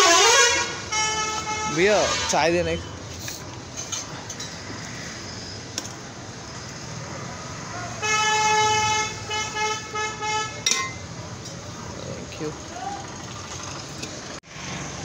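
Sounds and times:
vehicle horn honking: 0:00.0 - 0:02.9, 0:08.0 - 0:10.8
street background hum: 0:00.0 - 0:15.0.

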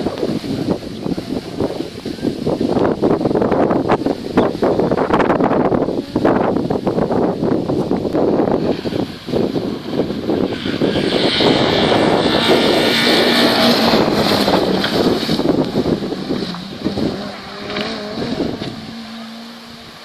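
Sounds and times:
rally car passing at speed: 0:08.4 - 0:20.0.

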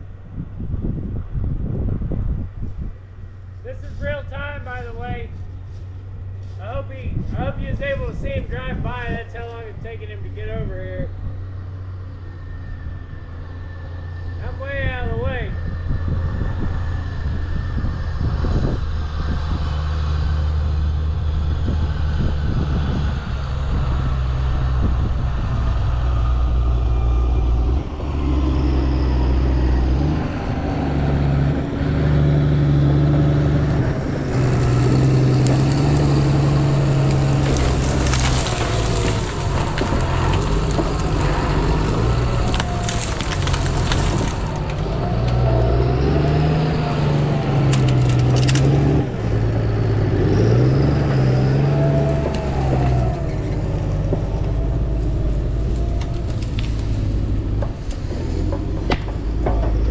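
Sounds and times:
diesel engine revving: 0:03.6 - 0:59.9
wood cracking and brush crushing: 0:33.0 - 0:59.9.

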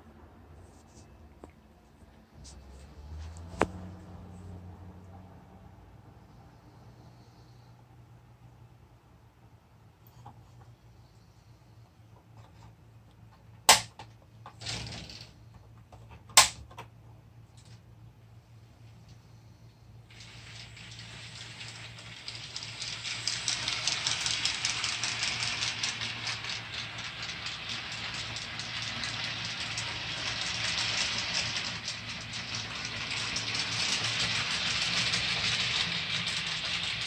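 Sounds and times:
model steam locomotive hiss: 0:20.1 - 0:37.0.

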